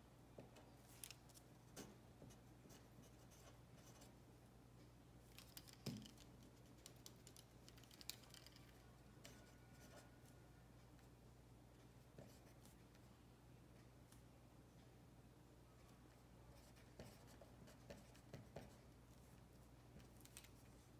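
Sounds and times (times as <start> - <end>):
handwriting scratching: 16.6 - 18.8.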